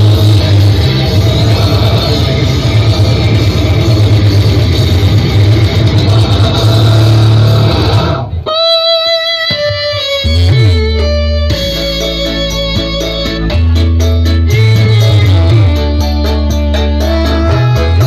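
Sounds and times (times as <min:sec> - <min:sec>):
falling bass sweep: 0:00.0 - 0:08.7
loud bass-heavy music: 0:00.0 - 0:18.0
sustained guitar-like notes: 0:00.0 - 0:18.0.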